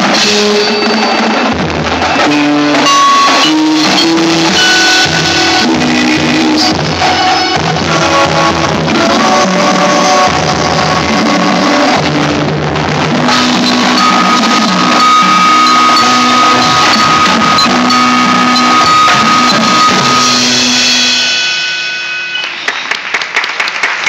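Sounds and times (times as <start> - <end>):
snare and bass drums: 0.0 - 21.2
synthesizer held chords: 0.0 - 22.5
vibraphone: 13.3 - 22.8
scattered applause: 22.3 - 24.0.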